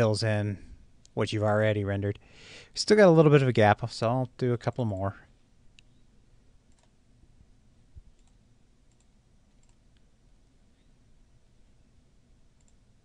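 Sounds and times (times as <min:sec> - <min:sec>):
faint computer mouse clicks: 0:06.7 - 0:07.0, 0:08.1 - 0:10.1, 0:12.6 - 0:12.8.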